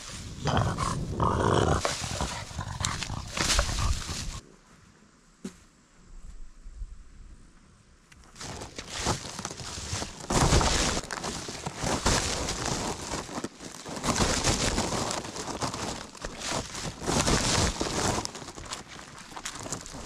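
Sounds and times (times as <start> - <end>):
plastic bag rustling: 0.0 - 4.4, 8.4 - 20.0.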